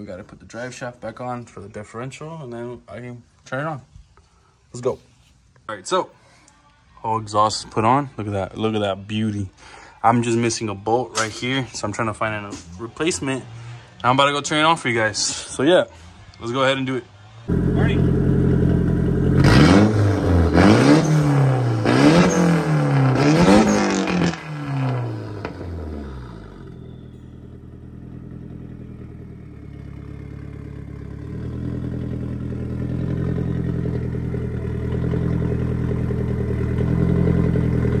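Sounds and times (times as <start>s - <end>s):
car engine revving: 17.3s - 38.0s
car engine idling: 17.4s - 38.0s.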